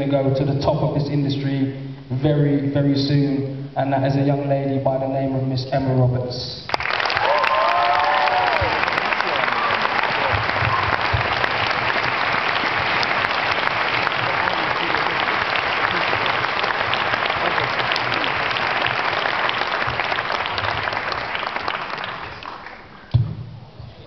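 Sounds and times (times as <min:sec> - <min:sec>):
audience applauding: 0:06.7 - 0:23.1.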